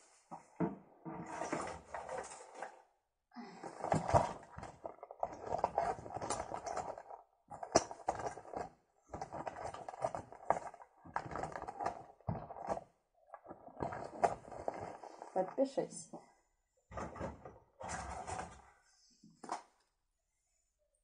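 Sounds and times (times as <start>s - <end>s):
cloth bag rustling: 13.4s - 15.4s.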